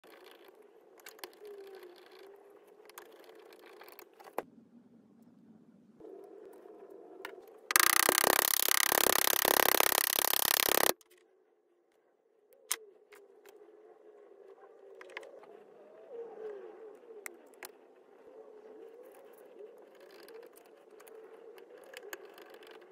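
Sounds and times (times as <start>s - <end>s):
hand tool clicks: 7.7s - 11.0s.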